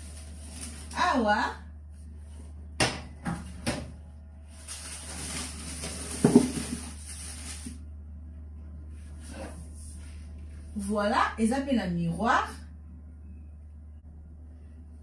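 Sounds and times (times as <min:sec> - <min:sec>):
rustling: 0:04.5 - 0:07.8.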